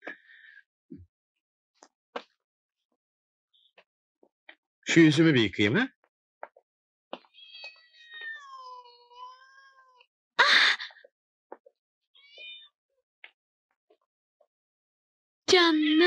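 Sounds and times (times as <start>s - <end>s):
kittens mewing: 7.3s - 10.0s.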